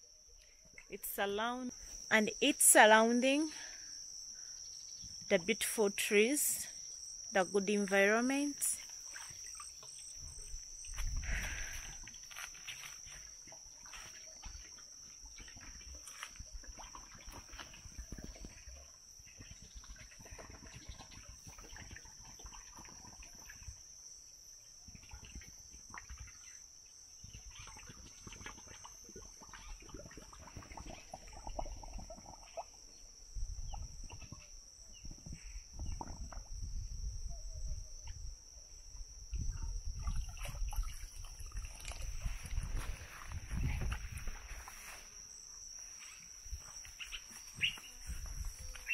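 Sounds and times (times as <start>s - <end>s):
high-pitched insect chorus: 0.0s - 48.9s
low bumps and rustles: 41.9s - 44.8s
footsteps through leafy vegetation: 42.1s - 45.3s.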